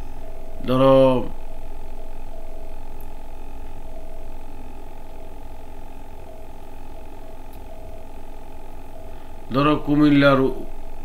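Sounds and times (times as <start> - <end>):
steady hum of held tones: 0.0 - 11.0.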